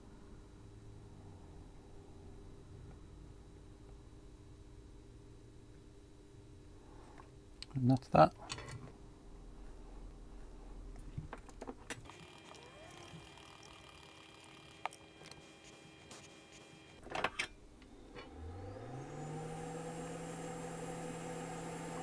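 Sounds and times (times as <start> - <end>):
hot air blower humming with whine: 12.0 - 17.0, 18.0 - 22.0.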